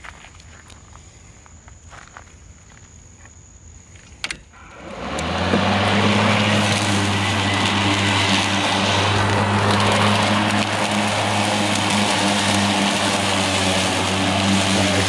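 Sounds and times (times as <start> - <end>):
electric lawn mower humming: 4.6 - 15.0.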